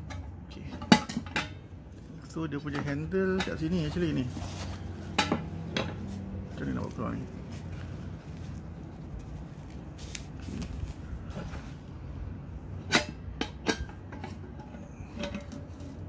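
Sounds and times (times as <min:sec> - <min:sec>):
wok set clicks and knocks: 0:00.0 - 0:01.6, 0:05.1 - 0:06.0, 0:12.8 - 0:15.7
low steady hum: 0:00.0 - 0:16.0.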